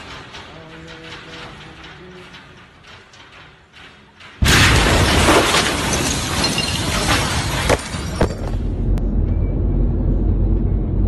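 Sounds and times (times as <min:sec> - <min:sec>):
sharp impacts: 0:00.0 - 0:08.9
glass and debris crashing down: 0:04.4 - 0:08.7.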